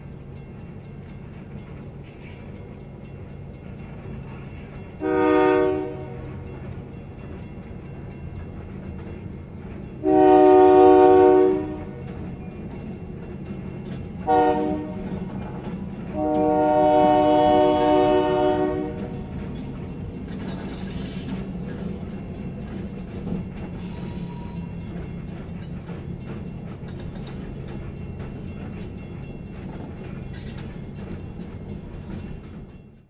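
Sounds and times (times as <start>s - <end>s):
freight train rumbling past: 0.0s - 33.0s
train horn blast: 5.0s - 6.4s, 10.0s - 12.0s, 14.2s - 15.1s, 16.1s - 19.3s.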